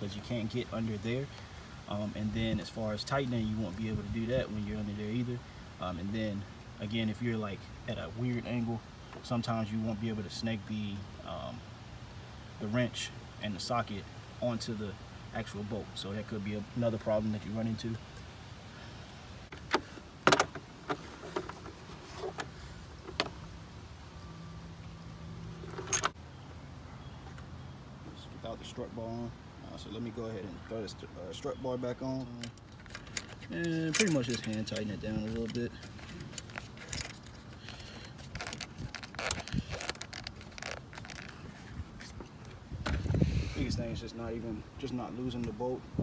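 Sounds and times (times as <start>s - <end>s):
metal clicks and clanks: 25.6s - 26.2s, 32.3s - 38.7s.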